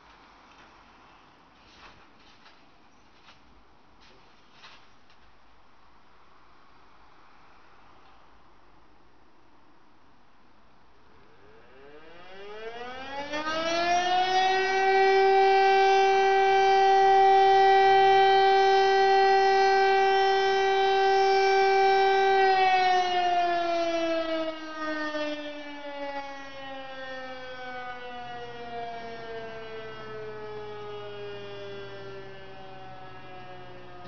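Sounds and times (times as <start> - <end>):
motor siren wailing: 11.2 - 34.0.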